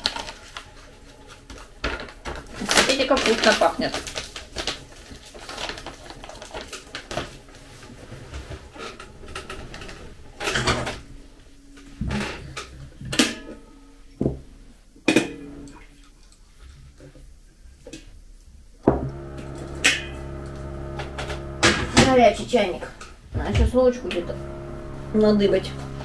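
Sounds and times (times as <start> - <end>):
paper snack bag crinkling: 2.6 - 7.1.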